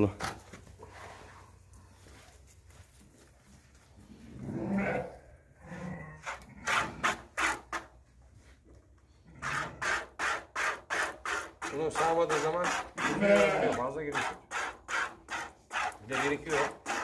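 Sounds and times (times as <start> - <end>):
sheep bleating: 13.0 - 13.8.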